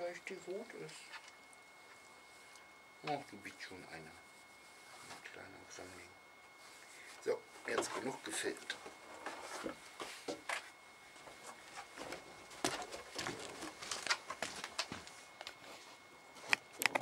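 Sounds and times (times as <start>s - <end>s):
puppy paws on wooden decking: 9.2s - 15.6s
footsteps on wooden decking: 9.2s - 15.9s.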